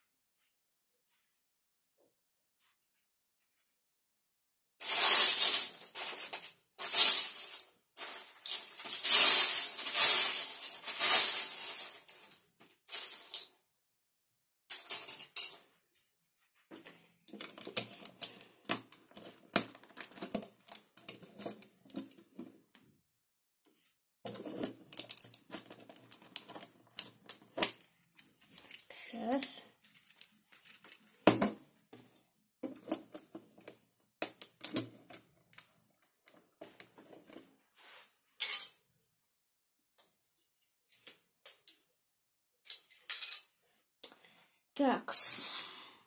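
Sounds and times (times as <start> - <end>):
plastic bricks rattling: 17.3 - 22.5, 24.3 - 31.4.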